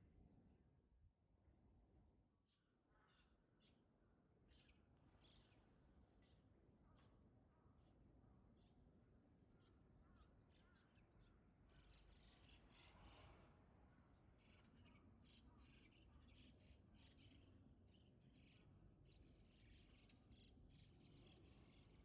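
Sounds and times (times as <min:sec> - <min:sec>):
birds calling overhead: 0:09.5 - 0:22.0.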